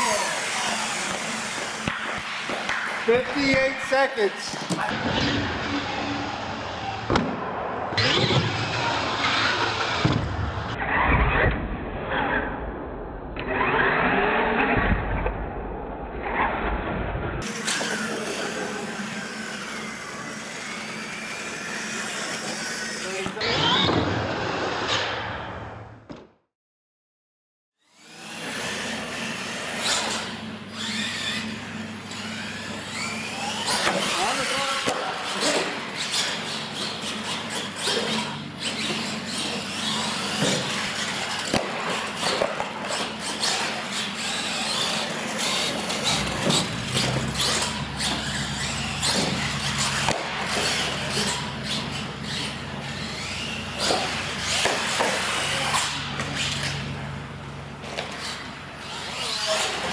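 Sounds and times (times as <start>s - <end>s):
electric motor whining: 0.0s - 3.7s, 17.4s - 24.2s, 27.8s - 57.2s.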